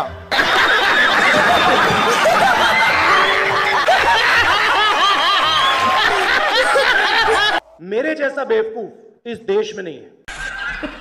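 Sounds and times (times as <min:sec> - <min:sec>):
crowd laughing: 0:00.3 - 0:07.6, 0:10.3 - 0:11.0
man laughing loudly: 0:00.3 - 0:07.6, 0:10.3 - 0:11.0.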